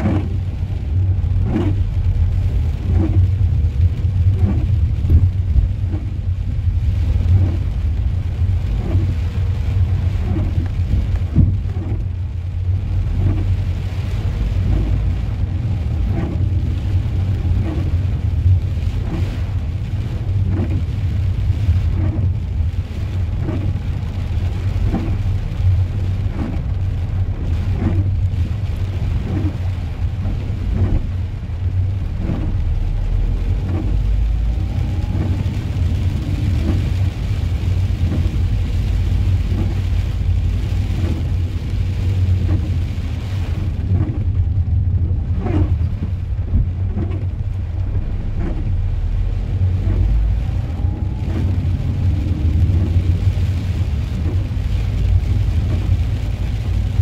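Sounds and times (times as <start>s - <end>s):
car engine and tyres rumbling: 0.0s - 57.0s
rain on windscreen: 0.0s - 57.0s
windscreen wipers sweeping: 0.0s - 57.0s.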